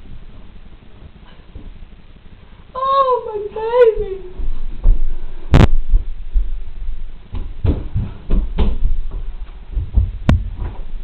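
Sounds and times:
footsteps and bumps: 0.2s - 1.9s, 4.0s - 11.0s
dull thumps and knocks: 7.3s - 10.9s.

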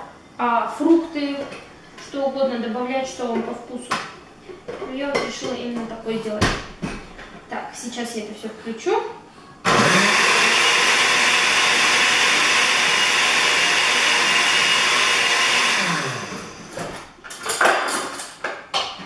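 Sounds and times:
blender motor running: 9.7s - 17.0s.

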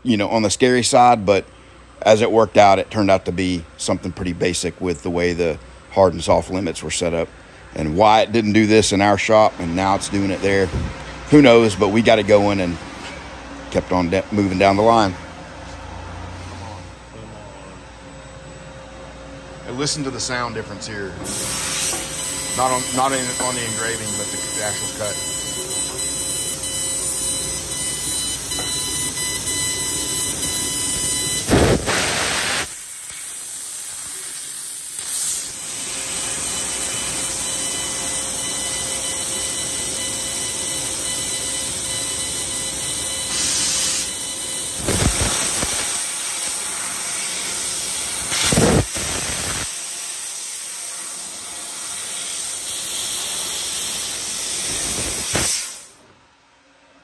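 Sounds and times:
short loud air blasts: 21.2s - 23.6s, 31.0s - 36.1s, 43.3s - 44.1s, 44.8s - 47.6s, 48.2s - 56.0s
air hissing from laser cutter: 21.2s - 56.0s.

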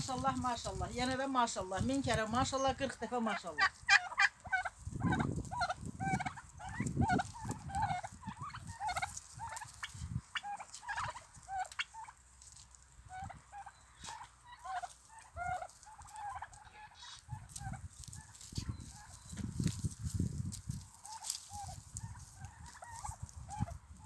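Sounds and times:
turkeys calling: 0.0s - 24.0s.

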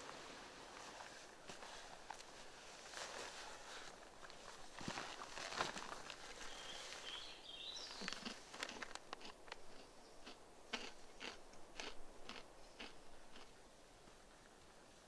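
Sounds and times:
footsteps crunching: 0.8s - 9.3s.

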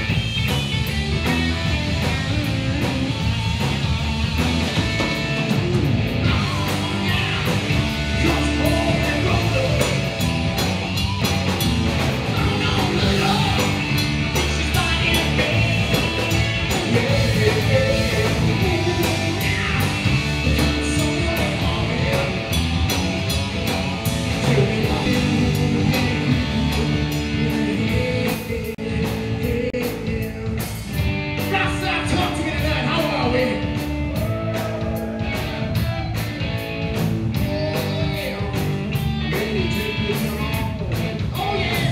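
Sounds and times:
bass guitar: 0.0s - 41.9s
drum kit with cymbals: 0.0s - 41.9s
electric guitar: 0.0s - 41.9s.

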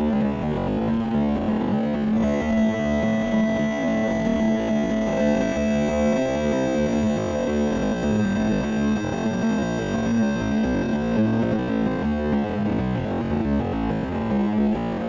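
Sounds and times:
background music: 2.2s - 13.0s.

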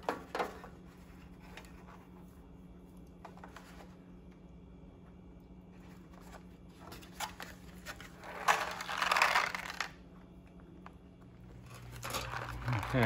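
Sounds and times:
paper and cardboard crinkling: 6.1s - 10.0s, 11.6s - 13.0s.

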